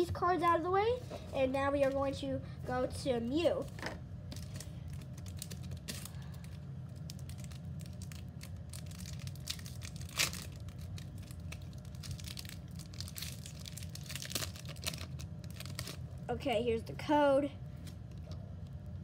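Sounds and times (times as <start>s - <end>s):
foil wrapper crinkling: 4.3s - 16.2s.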